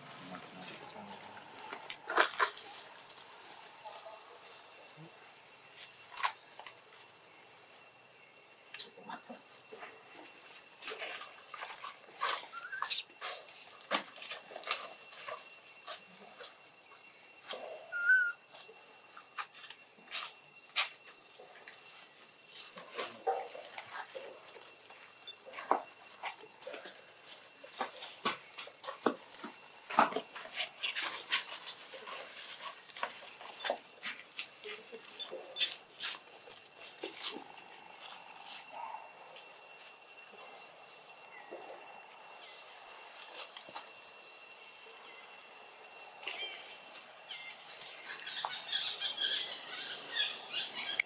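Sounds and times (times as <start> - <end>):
monkey squeaks and clicks: 12.5 - 13.1.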